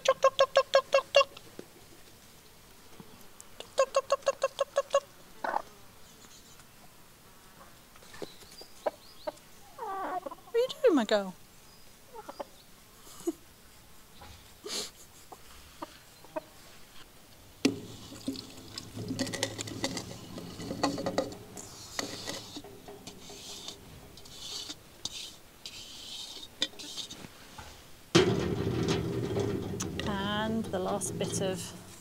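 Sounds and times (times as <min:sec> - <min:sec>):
chickens clucking: 0:00.0 - 0:01.5, 0:03.6 - 0:06.6, 0:08.0 - 0:10.8, 0:12.1 - 0:12.6, 0:17.7 - 0:30.0.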